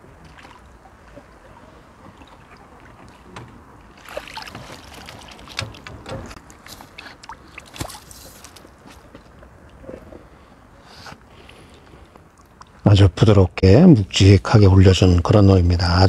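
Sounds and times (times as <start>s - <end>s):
fish splashing in water: 3.9s - 6.0s, 6.8s - 8.6s.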